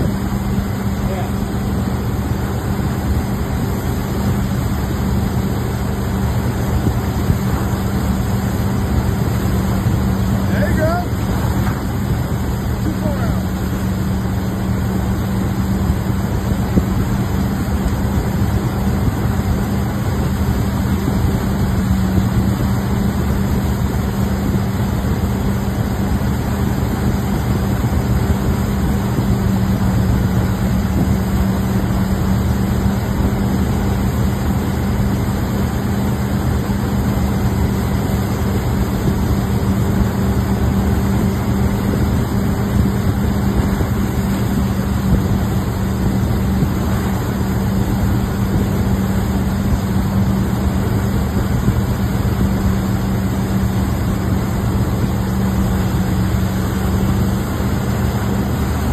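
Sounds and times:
boat engine humming: 0.0s - 58.9s
water churning in wake: 0.0s - 58.9s.

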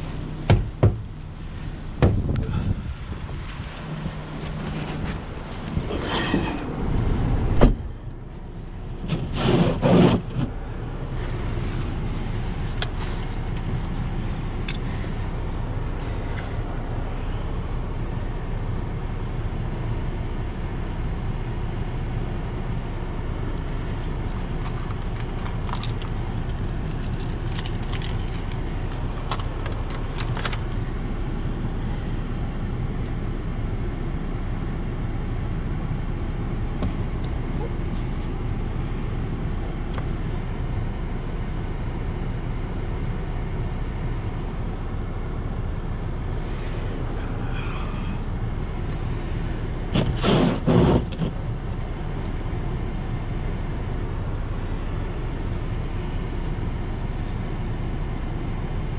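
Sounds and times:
car engine idling: 0.0s - 9.5s, 10.2s - 58.9s.

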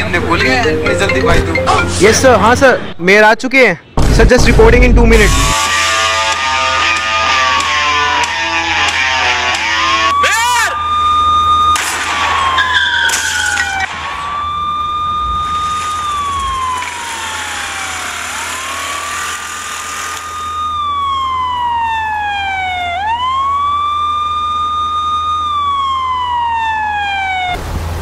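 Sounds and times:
wailing siren: 5.3s - 27.6s.

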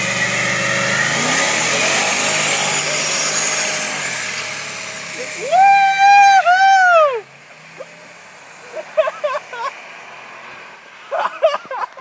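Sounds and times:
car engine at full throttle: 0.0s - 12.0s
person whooping: 5.2s - 7.3s.

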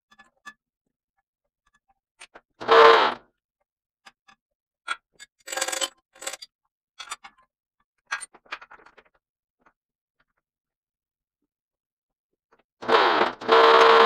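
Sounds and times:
metal tooling clinking: 5.2s - 7.3s.

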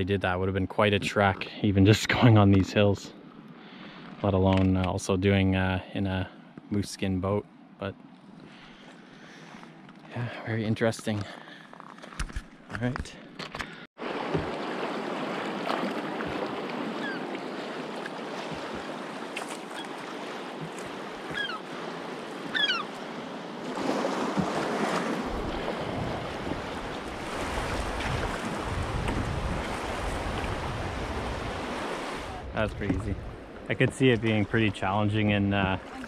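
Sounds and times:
wind rumbling on microphone: 25.2s - 34.6s.

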